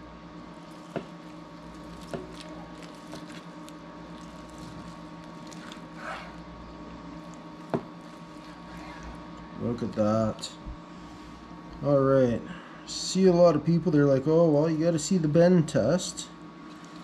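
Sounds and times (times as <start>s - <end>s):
steady low hum: 0.0s - 17.0s
knife slicing wet meat: 0.6s - 6.5s.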